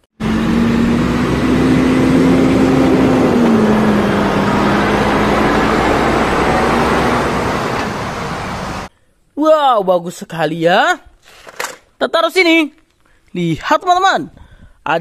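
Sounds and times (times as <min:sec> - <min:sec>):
heavy truck engine running: 0:00.2 - 0:08.9.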